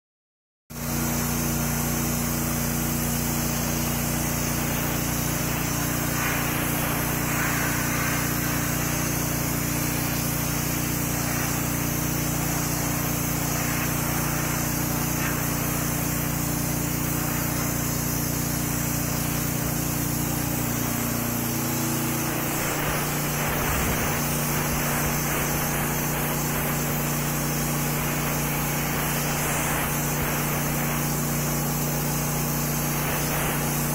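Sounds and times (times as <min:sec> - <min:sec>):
blaster spraying hiss: 0:00.8 - 0:33.9
low machine hum: 0:04.0 - 0:30.8.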